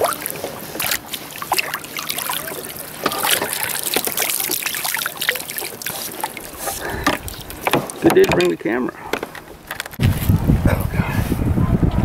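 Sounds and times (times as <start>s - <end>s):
water splashing and dripping: 0.0s - 10.0s.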